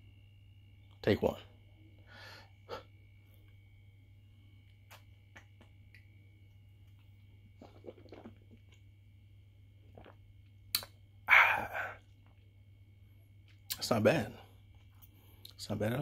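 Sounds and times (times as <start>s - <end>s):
mouth clicks and lip noises: 4.7s - 6.1s, 7.6s - 8.8s, 10.0s - 11.0s.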